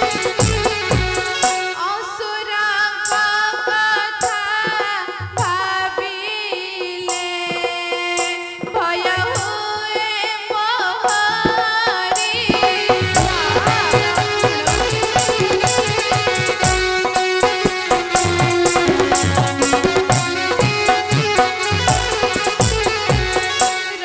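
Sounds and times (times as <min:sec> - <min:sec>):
woman singing into microphone: 0:01.7 - 0:17.6
hand drum strokes: 0:11.3 - 0:23.8
sustained instrumental tones: 0:12.4 - 0:23.8.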